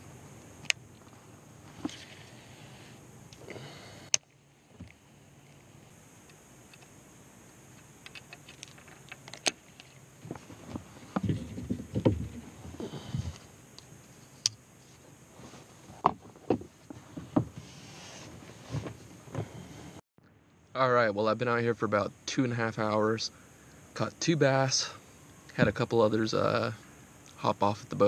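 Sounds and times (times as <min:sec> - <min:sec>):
low thumps against kayak hull: 0:10.3 - 0:12.4.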